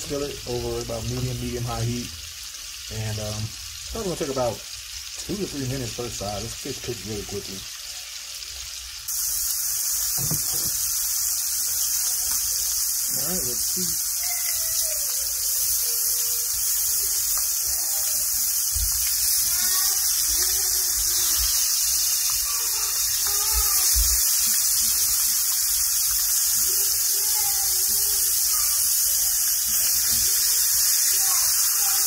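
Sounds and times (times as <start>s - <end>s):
fish sizzling in a frying pan: 0.0s - 32.0s.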